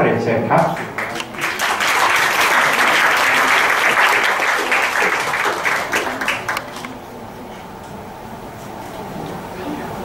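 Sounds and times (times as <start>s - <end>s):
audience applauding: 0.8s - 6.9s.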